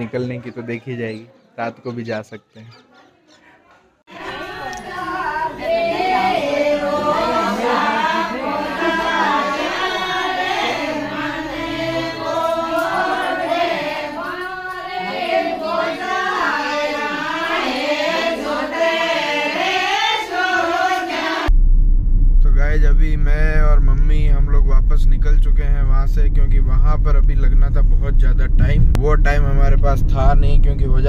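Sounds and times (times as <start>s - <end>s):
women singing in chorus: 4.1s - 21.5s.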